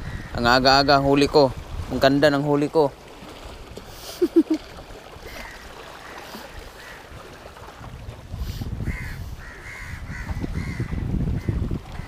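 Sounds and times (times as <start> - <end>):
waves washing against rocks: 0.0 - 9.0.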